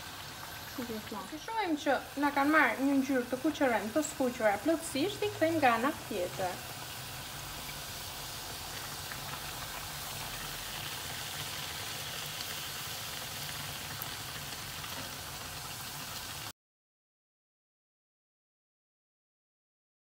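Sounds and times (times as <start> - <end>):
dough sizzling in hot oil: 0.0 - 16.5.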